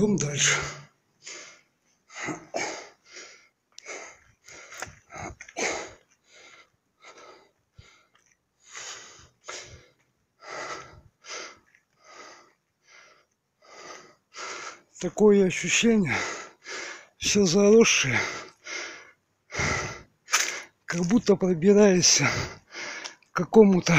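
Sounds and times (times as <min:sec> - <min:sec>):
man breathing hard: 0:00.8 - 0:15.0, 0:16.0 - 0:17.2, 0:18.1 - 0:20.8, 0:22.1 - 0:23.3.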